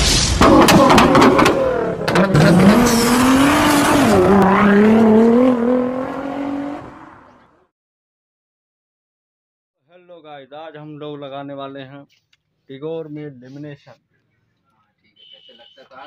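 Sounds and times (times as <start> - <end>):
exhaust pops and cracks: 0.4 - 2.3
car engine revving: 0.4 - 7.6.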